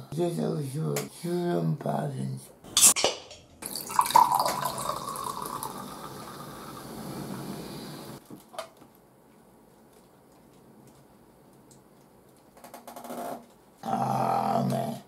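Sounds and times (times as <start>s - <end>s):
fizzy drink pouring into glass: 3.6s - 8.2s.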